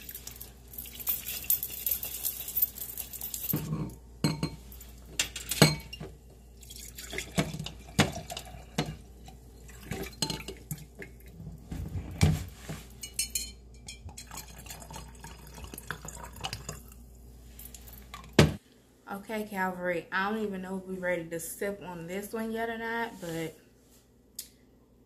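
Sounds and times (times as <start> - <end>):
glass and metal clinks: 0.8 - 6.0, 13.0 - 14.3.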